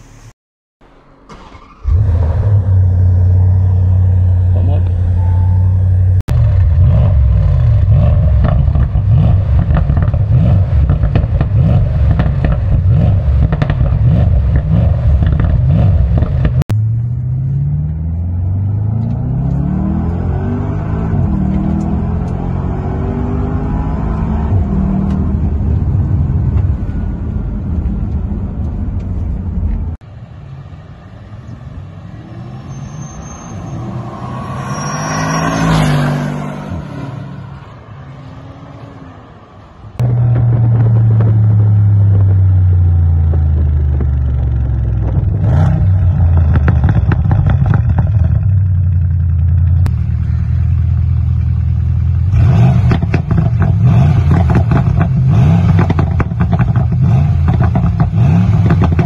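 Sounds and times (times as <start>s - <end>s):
car driving by: 0.0s - 48.5s
car engine and exhaust: 0.0s - 59.0s
exhaust crackle: 5.7s - 17.1s, 40.0s - 59.0s.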